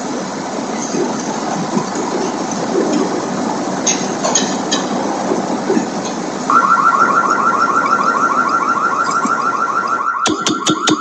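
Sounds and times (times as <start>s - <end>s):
steady rushing noise: 0.0s - 11.0s
car alarm chirping: 6.5s - 11.0s.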